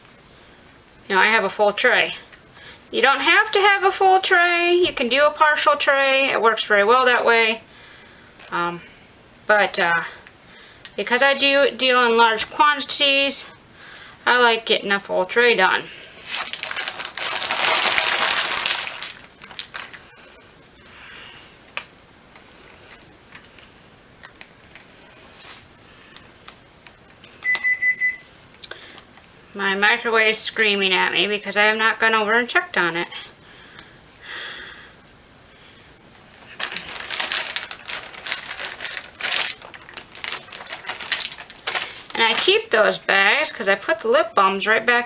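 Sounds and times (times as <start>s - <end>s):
plastic tubes clattering: 16.2s - 20.0s, 36.6s - 42.6s
plastic bag crinkling: 16.2s - 20.4s, 36.3s - 42.8s.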